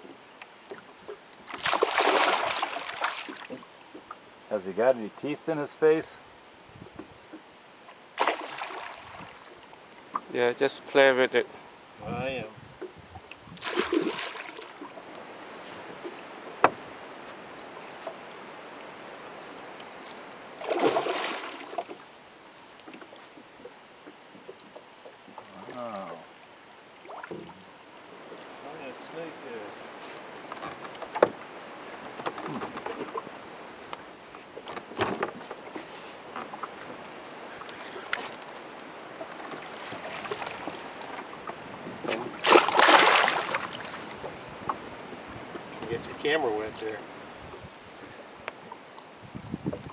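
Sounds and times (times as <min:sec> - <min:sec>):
fish thrashing and splashing: 0:01.5 - 0:03.6, 0:08.2 - 0:09.2, 0:13.6 - 0:14.8, 0:20.6 - 0:21.9, 0:42.2 - 0:44.1.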